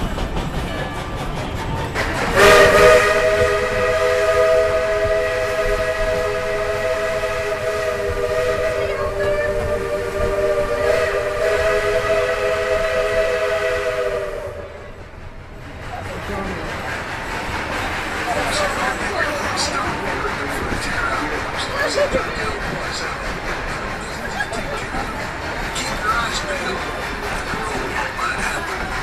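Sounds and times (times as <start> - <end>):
steam hissing: 1.0 - 29.0
steam locomotive whistle: 2.3 - 14.9.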